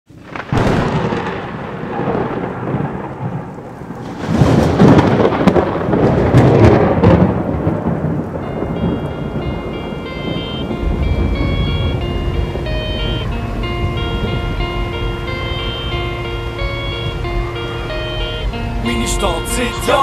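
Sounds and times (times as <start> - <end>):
rumbling thunder-like noise: 0.1 - 18.9
high music notes: 8.3 - 20.0.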